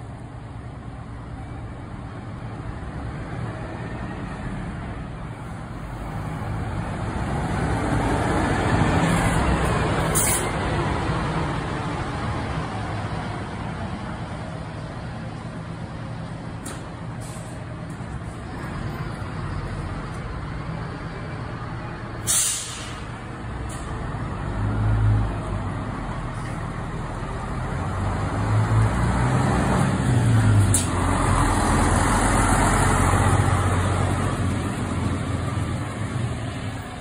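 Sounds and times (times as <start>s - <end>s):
bus diesel engine: 0.0s - 37.0s
air brakes hissing: 10.0s - 10.6s, 17.2s - 17.7s, 22.2s - 23.9s, 30.6s - 31.0s.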